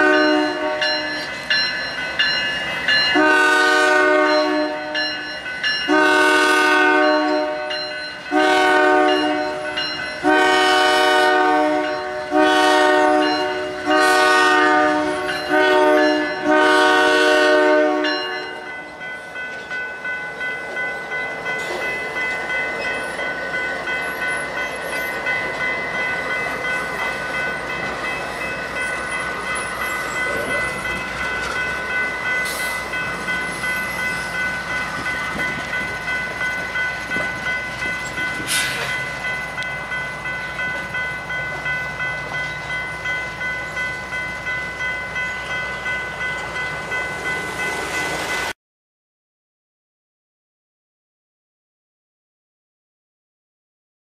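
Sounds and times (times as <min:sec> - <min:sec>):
locomotive air horn blasts: 0:00.0 - 0:01.1, 0:03.1 - 0:05.0, 0:05.9 - 0:09.6, 0:10.2 - 0:18.6
crossing warning bell ringing: 0:00.0 - 0:48.5
train wheels clicking on rails: 0:18.6 - 0:48.5.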